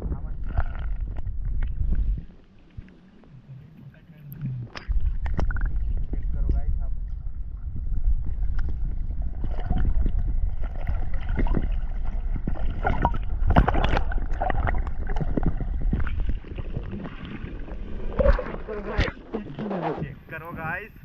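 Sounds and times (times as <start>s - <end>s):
water splashing and sloshing: 0.0s - 21.0s
wind rumble on microphone: 0.0s - 21.0s.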